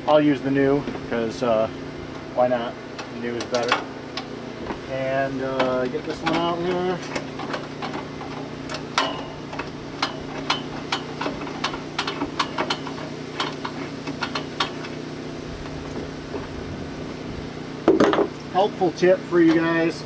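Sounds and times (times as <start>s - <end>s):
steady low hum: 0.0s - 20.0s
small metal ticks: 8.7s - 15.0s.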